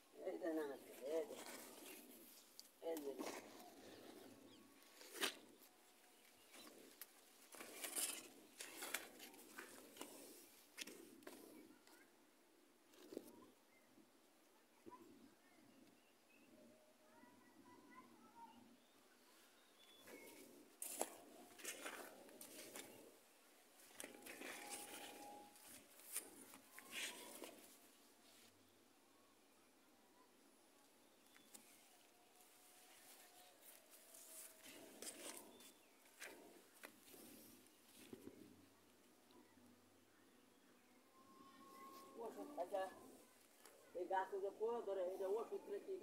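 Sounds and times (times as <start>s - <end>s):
leaves rustling: 0.4s - 10.4s, 23.8s - 28.4s, 32.4s - 38.1s
footsteps on dry soil: 19.9s - 23.2s, 23.8s - 27.7s
leaves rustling against phone: 20.1s - 28.6s, 31.5s - 38.5s.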